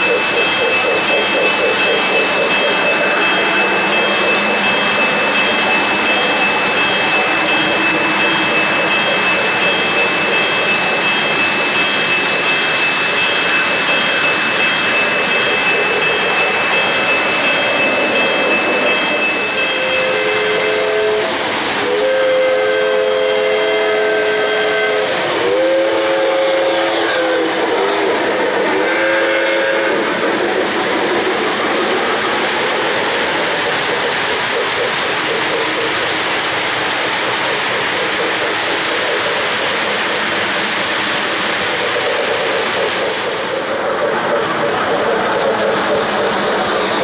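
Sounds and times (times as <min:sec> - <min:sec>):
model train rolling on track: 0:00.0 - 0:47.0
model train steam whistle: 0:19.4 - 0:30.2.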